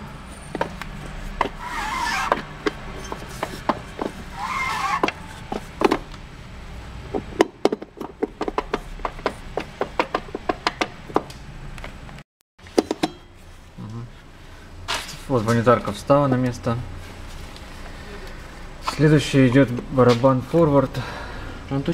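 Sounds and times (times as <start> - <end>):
metal scraping rubs: 0.2 - 6.1.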